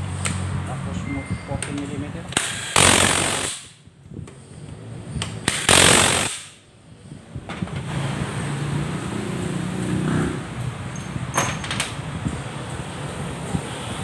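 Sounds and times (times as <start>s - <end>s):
impact wrench hammering: 2.3s - 3.8s.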